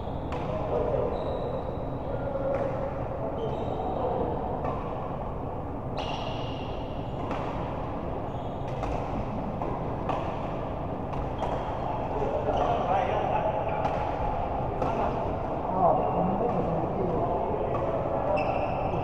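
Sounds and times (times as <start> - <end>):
shoe squeaks on court floor: 0.8 - 2.0, 3.4 - 4.1, 6.0 - 6.8, 8.3 - 8.8, 18.3 - 19.0
racket hitting ball: 8.7 - 11.9.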